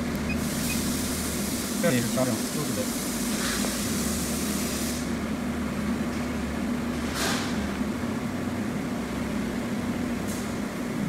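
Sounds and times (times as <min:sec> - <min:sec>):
low machinery hum: 0:00.0 - 0:11.0.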